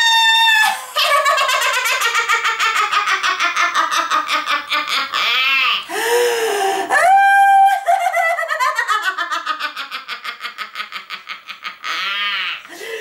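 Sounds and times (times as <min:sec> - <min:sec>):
woman laughing and shrieking: 0:00.0 - 0:01.8, 0:04.9 - 0:05.9, 0:06.9 - 0:09.3, 0:11.6 - 0:12.7.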